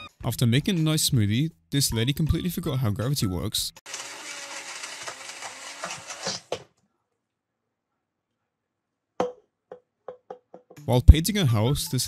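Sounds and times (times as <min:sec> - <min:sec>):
blender clicks: 0:03.9 - 0:06.6
blender motor whirring: 0:03.9 - 0:06.6.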